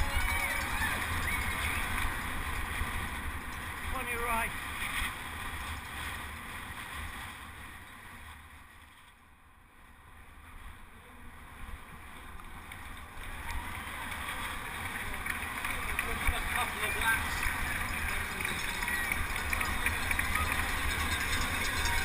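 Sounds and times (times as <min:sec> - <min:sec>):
faint crowd noise: 0:00.0 - 0:04.6, 0:09.7 - 0:22.0
faint road noise: 0:00.0 - 0:22.0.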